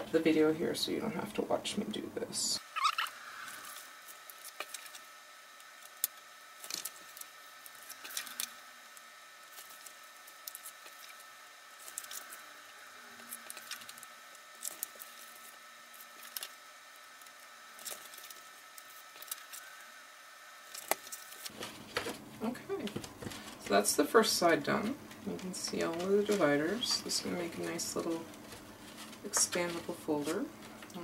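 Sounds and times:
faint steady hum: 0:00.0 - 0:31.0
paper rustling: 0:03.5 - 0:05.1, 0:20.7 - 0:23.8, 0:25.3 - 0:30.9.

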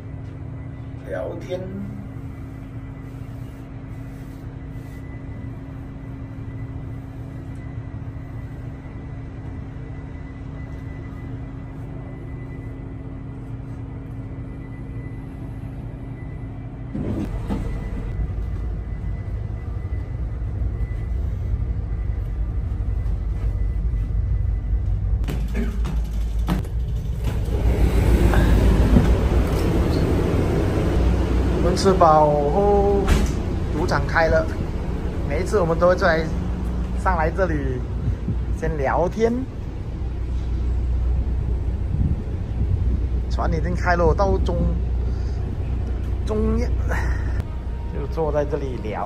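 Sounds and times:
faint high whine: 0:00.0 - 0:25.7, 0:27.5 - 0:49.0
ship engines droning: 0:00.0 - 0:49.0
low rumble: 0:26.2 - 0:49.0.

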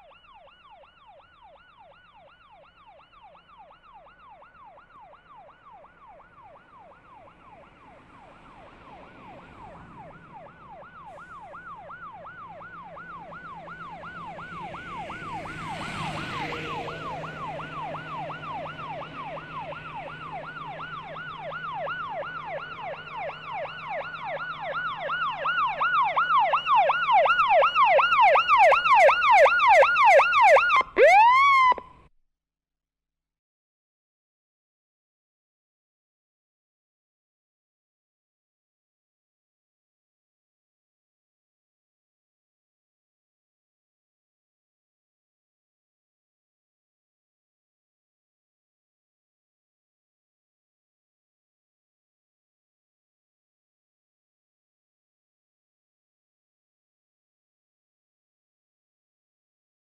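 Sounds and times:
police siren yelping: 0:00.0 - 0:32.0
low engine hum: 0:04.6 - 0:31.1.

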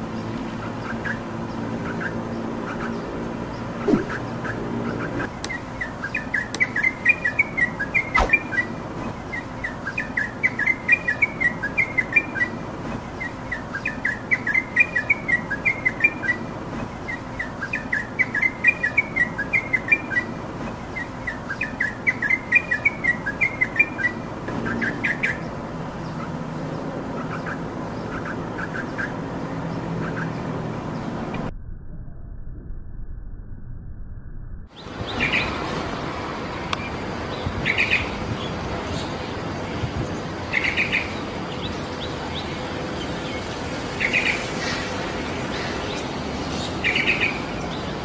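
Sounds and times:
steady background noise: 0:00.0 - 0:31.5, 0:34.7 - 0:48.0
bird singing chirpy notes: 0:00.2 - 0:12.6.

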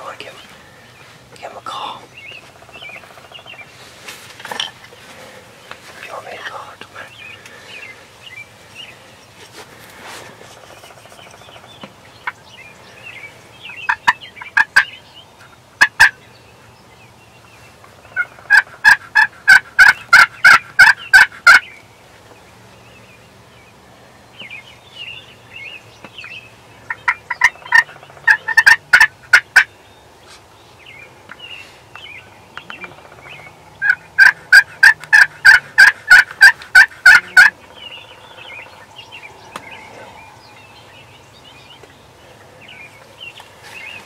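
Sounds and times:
turkey gobbling: 0:13.9 - 0:15.0, 0:15.8 - 0:16.2, 0:18.1 - 0:21.7, 0:26.9 - 0:29.7, 0:32.8 - 0:38.7.

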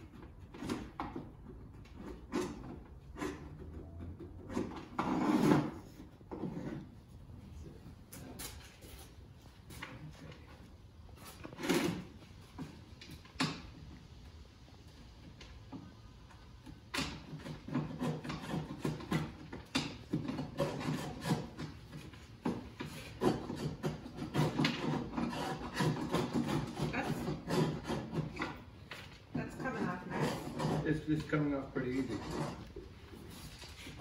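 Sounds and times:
chisel scraping putty: 0:00.0 - 0:06.9, 0:17.0 - 0:34.0.

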